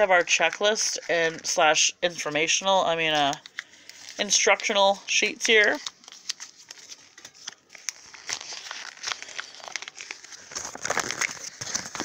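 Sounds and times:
plastic packaging crinkling: 2.8s - 12.0s.

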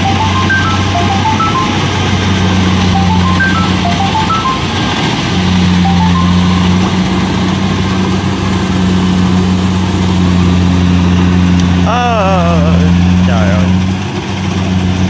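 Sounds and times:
electronic melody of rising beeps: 0.0s - 8.0s
harvester engine running: 0.0s - 15.0s.

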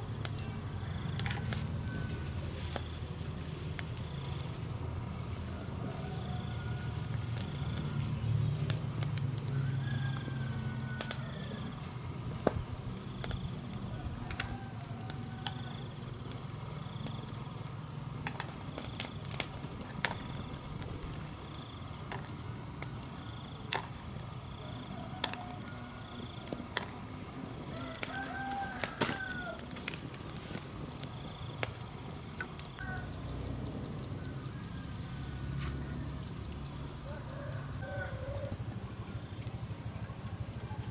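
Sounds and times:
wood fire crackling: 0.0s - 33.0s
insect drone: 0.0s - 40.9s
chickens and rooster calling: 0.4s - 2.9s, 4.8s - 8.3s, 9.3s - 12.2s, 13.8s - 16.2s, 24.6s - 30.6s, 32.5s - 36.2s, 36.8s - 38.8s.

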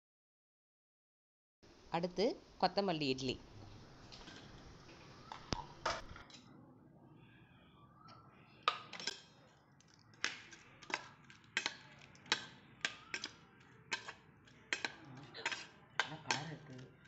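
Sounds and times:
steel spoon clinking against steel bowl: 10.5s - 17.0s.

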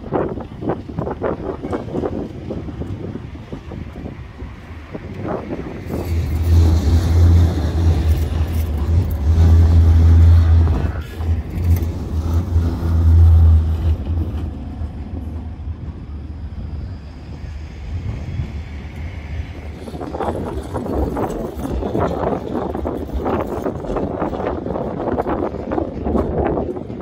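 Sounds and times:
tram passing with wheels on rail: 0.0s - 27.0s.

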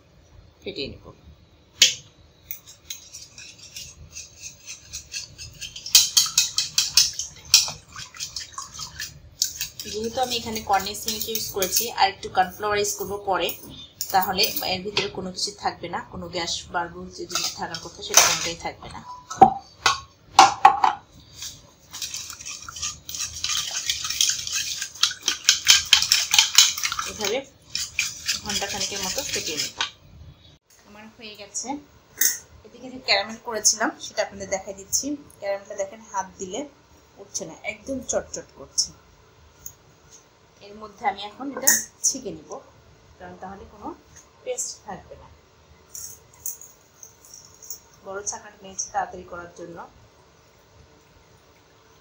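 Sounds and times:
whisk beating in metal bowl: 2.6s - 12.0s, 21.4s - 30.0s.

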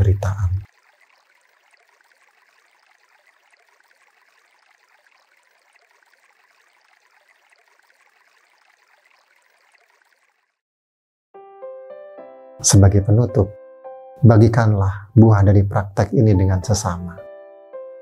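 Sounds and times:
stream flowing: 0.0s - 10.6s.

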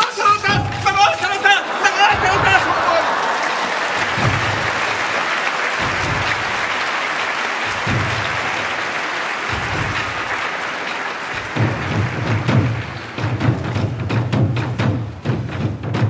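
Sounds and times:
crowd applauding: 0.0s - 15.5s
slow low drum beat: 5.8s - 6.7s, 7.7s - 8.7s, 9.5s - 10.3s, 11.4s - 16.0s.

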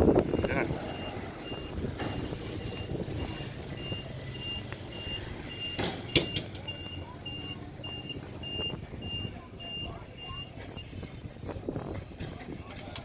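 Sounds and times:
reversing alarm beeping: 0.3s - 11.0s.

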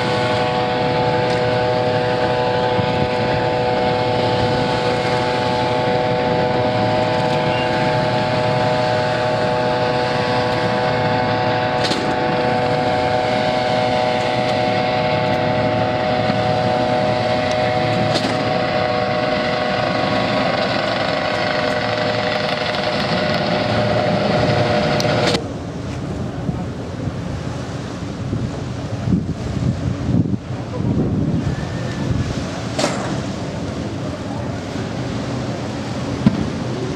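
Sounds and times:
helicopter rotor noise: 0.0s - 25.5s
helicopter turbine whine: 0.0s - 29.1s, 30.3s - 36.9s
wind noise on microphone: 0.0s - 36.9s.

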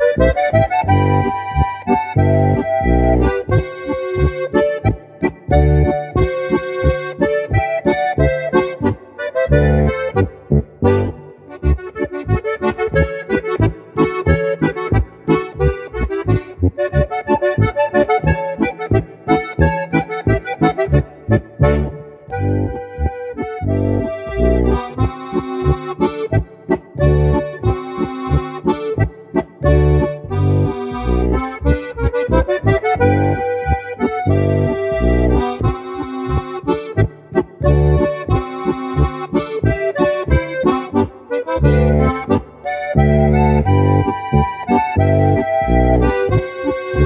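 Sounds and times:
button accordion folk dance tune: 0.0s - 47.0s.

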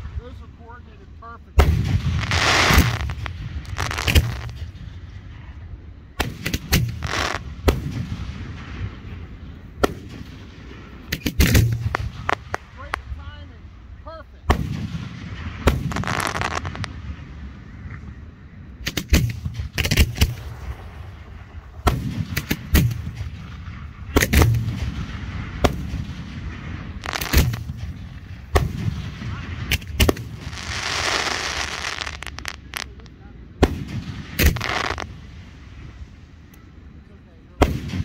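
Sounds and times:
fireworks bursting with sharp bangs: 0.0s - 36.5s, 37.3s - 38.0s
fireworks hissing: 2.1s - 4.8s, 6.2s - 7.5s, 11.1s - 13.2s, 15.4s - 17.0s, 25.0s - 33.1s, 34.0s - 36.1s.

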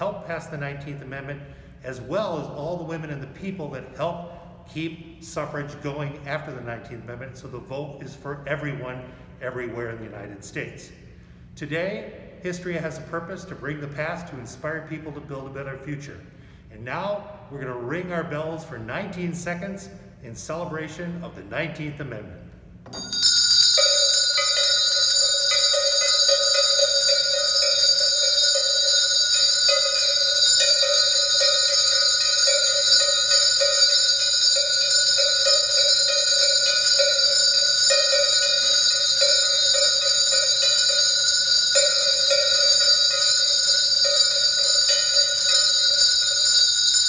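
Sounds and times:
brass hand bells ringing: 22.9s - 47.0s.

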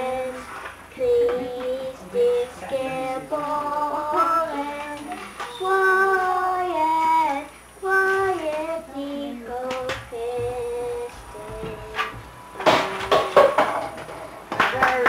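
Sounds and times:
children singing: 0.0s - 14.0s.

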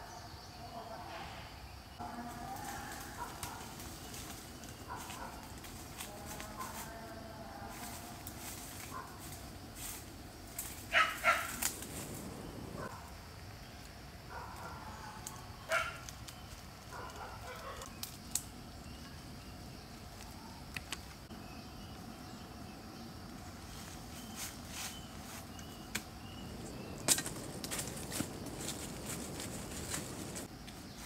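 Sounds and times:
dry leaves crackling and rustling: 2.0s - 12.9s, 23.3s - 31.0s.

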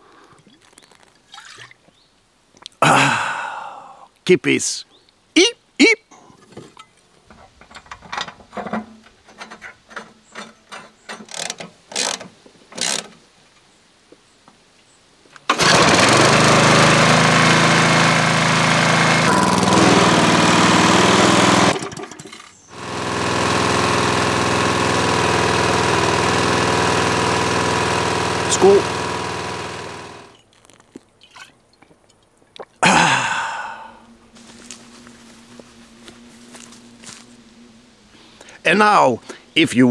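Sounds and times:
lawnmower engine running: 15.5s - 30.4s, 34.4s - 38.6s.

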